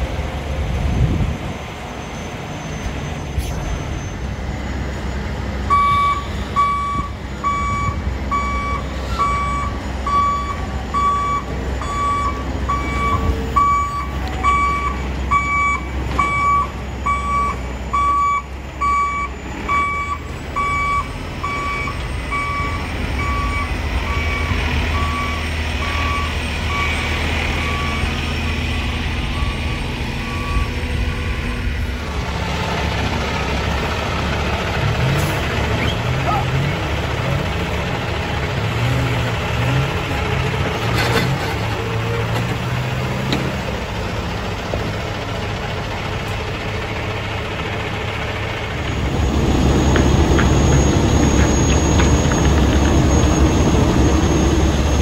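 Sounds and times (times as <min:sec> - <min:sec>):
diesel truck engines rumbling: 0:00.0 - 0:55.0
backup alarm beeping: 0:05.7 - 0:28.2.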